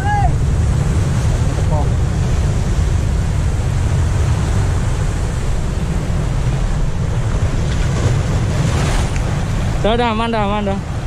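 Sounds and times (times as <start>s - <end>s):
ocean surf breaking over rocks: 0.0s - 11.0s
wind rumble on microphone: 0.0s - 11.0s.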